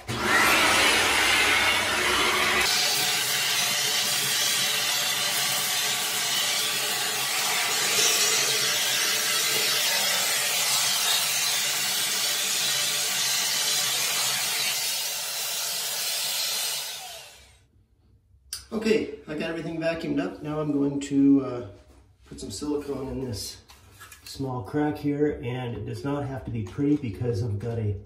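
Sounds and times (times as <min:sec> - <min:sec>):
vacuum cleaner sucking debris: 0:00.0 - 0:17.6.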